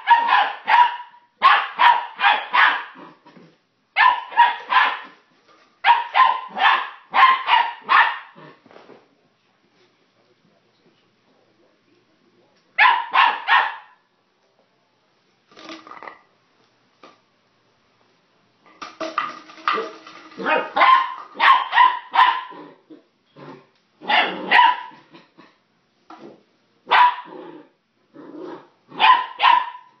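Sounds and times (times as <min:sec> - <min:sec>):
puppy barking: 0:00.0 - 0:03.0, 0:04.0 - 0:05.2, 0:05.8 - 0:08.4, 0:12.8 - 0:14.0, 0:20.4 - 0:22.6, 0:24.0 - 0:25.1, 0:26.9 - 0:27.3, 0:28.9 - 0:30.0.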